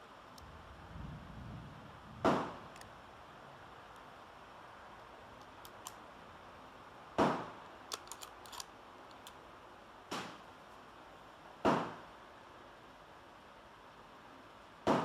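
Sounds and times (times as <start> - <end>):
rifle bolt clicks: 5.4 - 6.0, 7.9 - 9.4.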